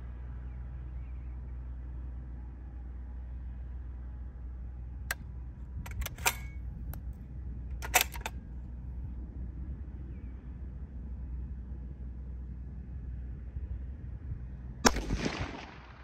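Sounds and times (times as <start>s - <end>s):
low steady rumble: 0.0s - 16.0s
rifle clicks and clacks: 5.8s - 7.1s, 7.7s - 8.4s.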